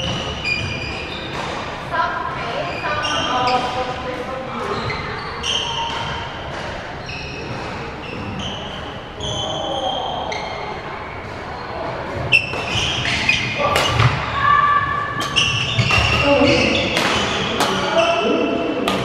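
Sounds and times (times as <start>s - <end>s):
sneakers squeaking on wooden floor: 0.0s - 1.8s, 2.4s - 19.0s
racket hitting shuttlecock: 12.2s - 14.3s, 15.1s - 16.2s, 16.8s - 18.0s.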